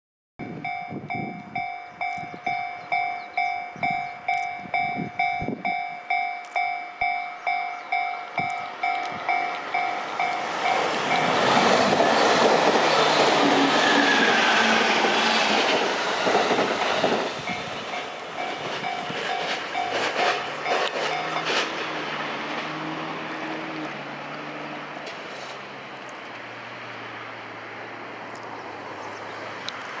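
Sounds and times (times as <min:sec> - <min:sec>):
level crossing bell dinging: 0:00.4 - 0:11.3
electric train passing: 0:00.4 - 0:30.0
train wheels clattering over joints: 0:08.4 - 0:22.0.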